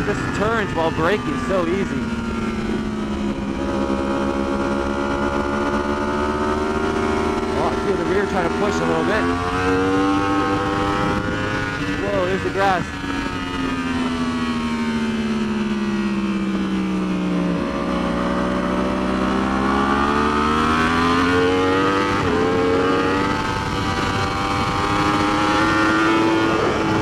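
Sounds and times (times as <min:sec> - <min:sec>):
motorcycle engine revving: 0:00.0 - 0:27.0
wind noise: 0:09.4 - 0:14.9, 0:20.6 - 0:27.0.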